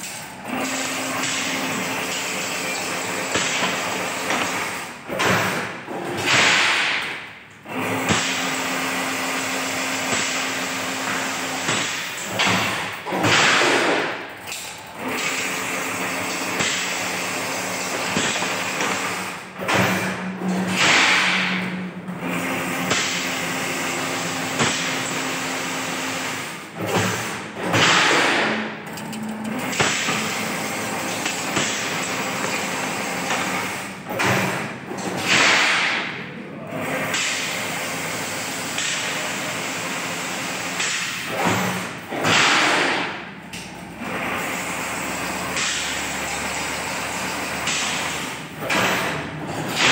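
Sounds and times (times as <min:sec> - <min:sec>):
machine motor hum: 0:00.2 - 0:42.2.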